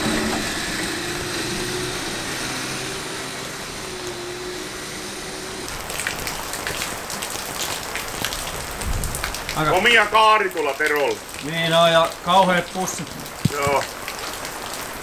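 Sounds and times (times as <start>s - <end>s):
vehicle droning: 0.0s - 7.2s.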